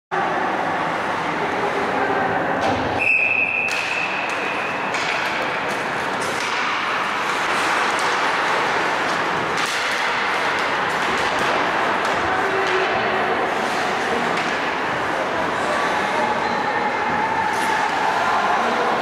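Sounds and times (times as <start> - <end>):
voices: 0.2 - 5.1, 7.4 - 19.0
referee's whistle blast: 3.0 - 4.1
skates on ice: 3.7 - 19.0.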